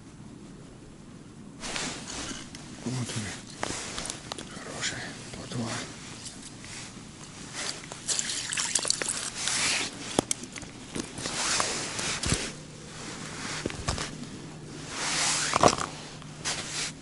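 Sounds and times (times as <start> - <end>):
clothing rustling: 1.6 - 17.0
water dripping and splashing: 7.8 - 9.4.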